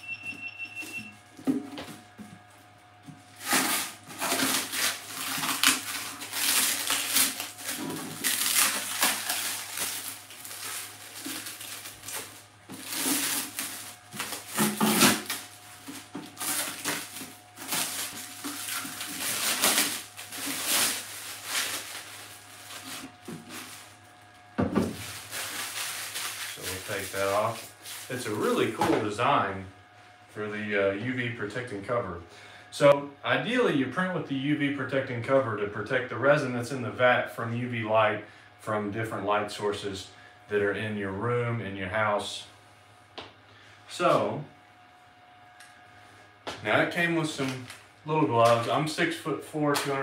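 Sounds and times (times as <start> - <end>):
plastic bag crinkling: 3.4 - 24.3, 24.9 - 28.7.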